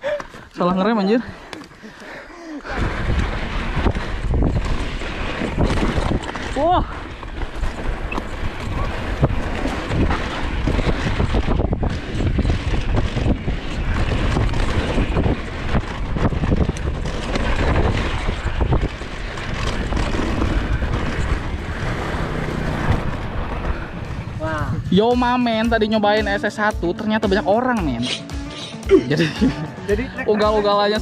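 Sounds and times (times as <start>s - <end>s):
bike tyres rumbling on dirt: 2.1s - 28.0s
wind rushing over microphone: 2.6s - 27.0s
bike knocks and rattles: 2.9s - 24.5s.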